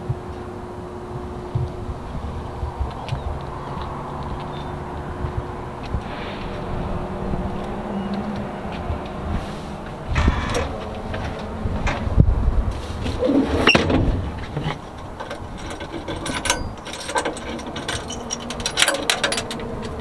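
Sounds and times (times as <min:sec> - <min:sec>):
short metal squeaks: 0:10.1 - 0:10.8, 0:15.4 - 0:20.0
metal chain clicking and knocking: 0:15.0 - 0:20.0.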